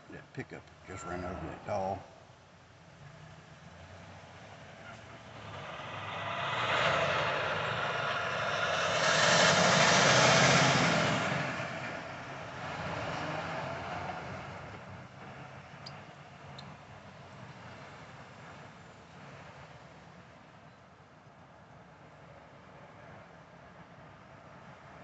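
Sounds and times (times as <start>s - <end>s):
tractor-trailer passing: 0.0s - 20.6s.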